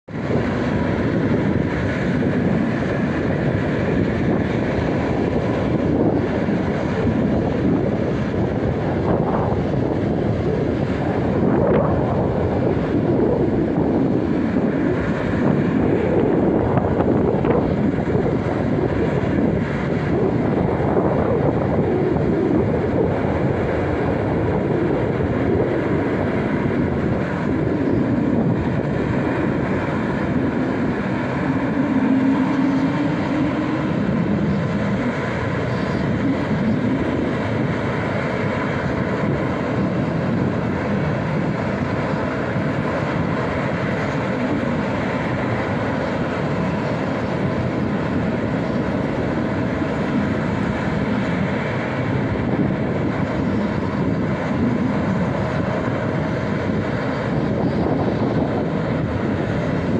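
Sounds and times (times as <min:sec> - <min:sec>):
jet engines idling: 0:00.1 - 0:59.9.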